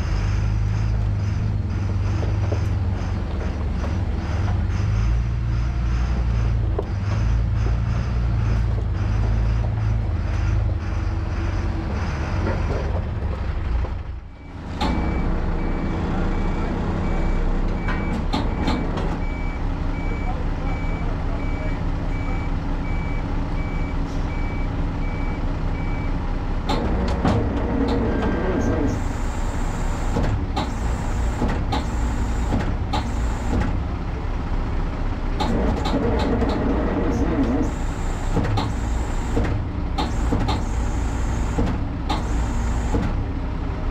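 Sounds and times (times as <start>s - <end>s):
truck engine running: 0.0s - 43.9s
reversing alarm beeping: 3.8s - 12.4s, 14.3s - 26.2s.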